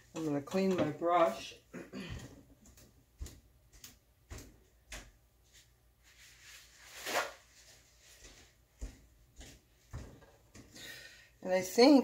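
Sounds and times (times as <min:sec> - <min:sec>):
brush swishing in water: 0:02.6 - 0:10.2.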